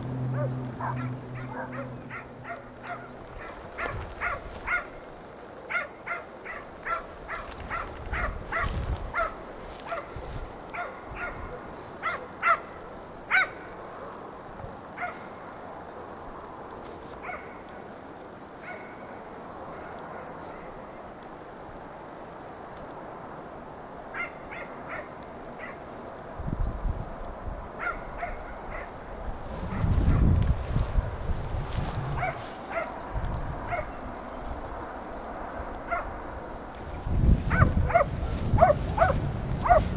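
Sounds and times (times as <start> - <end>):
low microphone rumble: 0.0 - 4.8, 29.2 - 34.1, 36.8 - 39.9
dog barking: 0.3 - 4.9, 5.7 - 10.1, 10.8 - 12.7, 13.3 - 14.2, 15.0 - 15.2, 17.2 - 17.5, 18.6 - 18.9, 24.2 - 25.8, 27.8 - 28.9, 32.2 - 33.0, 33.7 - 34.0, 35.9 - 36.1, 37.5 - 39.9.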